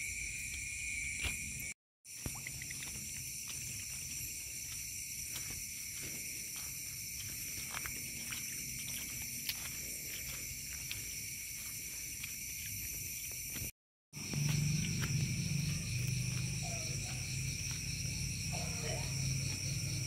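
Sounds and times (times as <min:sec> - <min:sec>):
night insects trilling: 0:00.0 - 0:20.0.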